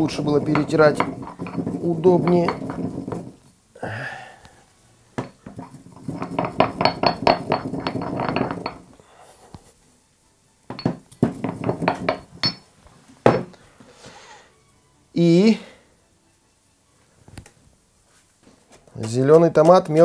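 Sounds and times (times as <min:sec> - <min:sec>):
pestle pounding in stone mortar: 0:00.0 - 0:03.4, 0:05.2 - 0:08.9, 0:10.7 - 0:12.4.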